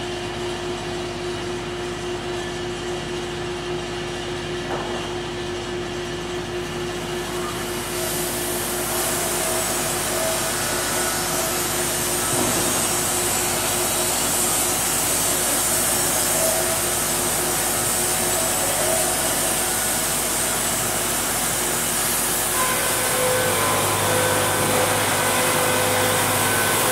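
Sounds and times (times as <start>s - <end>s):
sawmill machinery whirring: 6.4s - 26.9s.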